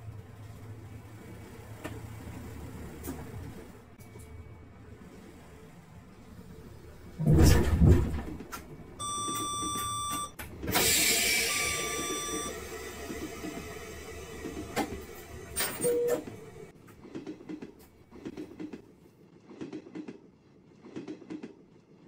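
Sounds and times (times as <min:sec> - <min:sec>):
train electronic warning tone: 0:04.0 - 0:05.2, 0:09.0 - 0:14.9, 0:15.6 - 0:16.6
low beep: 0:09.0 - 0:10.3, 0:11.5 - 0:12.6
hissing air burst: 0:10.8 - 0:11.6.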